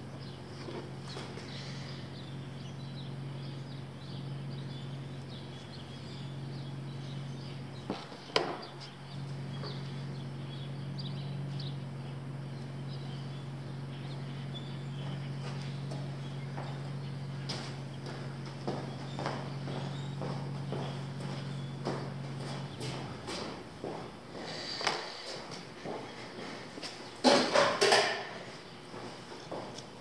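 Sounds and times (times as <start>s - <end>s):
low hum: 0.0s - 30.0s.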